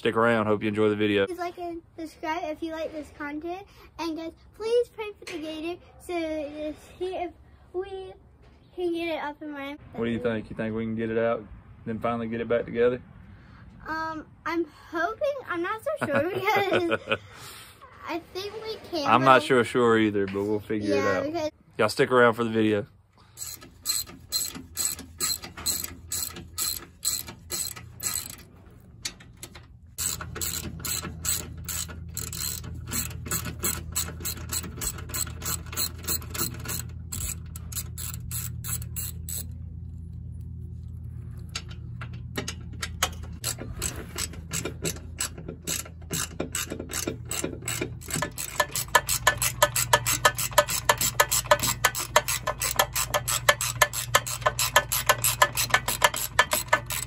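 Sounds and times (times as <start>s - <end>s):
socket ratchet clicking: 23.4s - 28.4s, 30.0s - 39.6s, 42.6s - 57.0s.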